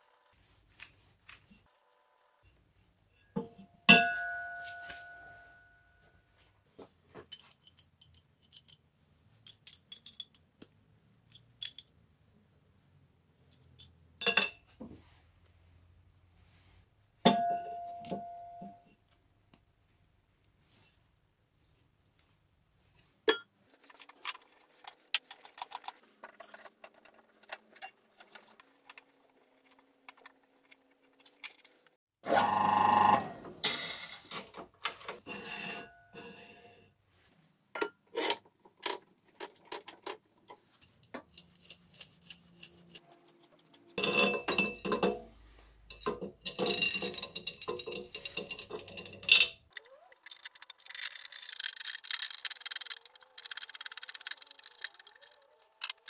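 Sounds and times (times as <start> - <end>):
small metal parts clinking: 7.2 - 10.6, 11.2 - 12.0, 38.2 - 56.0.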